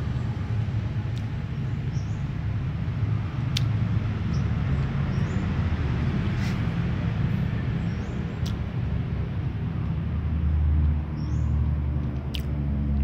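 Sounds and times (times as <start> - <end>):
low rumble of background noise: 0.0 - 13.0.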